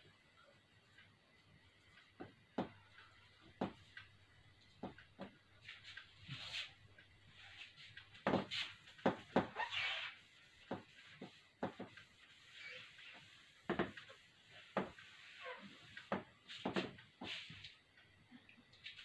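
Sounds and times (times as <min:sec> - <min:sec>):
duster scrubbing whiteboard: 0:04.9 - 0:17.7.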